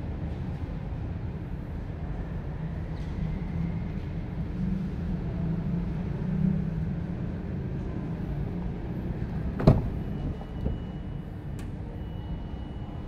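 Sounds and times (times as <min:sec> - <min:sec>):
car door latch click: 0:09.6 - 0:10.0.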